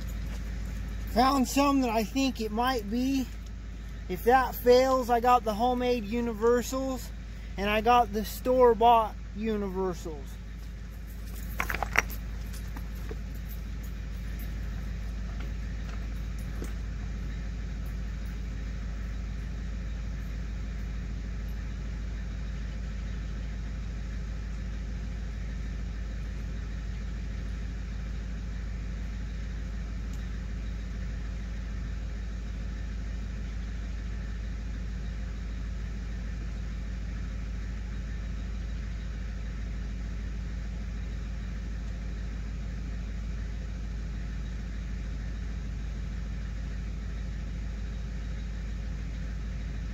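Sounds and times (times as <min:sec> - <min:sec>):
diesel truck engine idling: 0:00.0 - 0:49.9.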